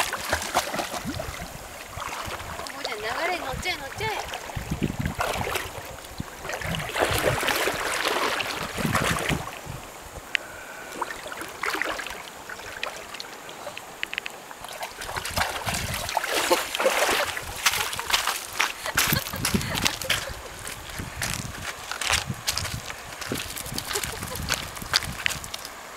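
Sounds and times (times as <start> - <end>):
water splashing and sloshing: 0.0 - 10.2, 10.8 - 25.9
paws crunching on pebbles: 16.7 - 25.8.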